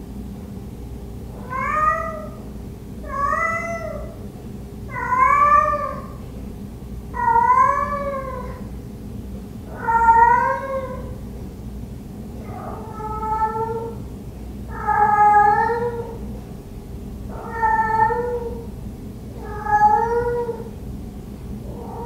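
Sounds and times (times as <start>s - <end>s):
cat meowing: 1.4s - 2.4s, 3.0s - 4.2s, 4.9s - 6.2s, 7.2s - 8.6s, 9.7s - 11.2s, 12.4s - 14.0s, 14.7s - 16.2s, 17.3s - 18.7s, 19.4s - 20.7s, 21.7s - 22.0s.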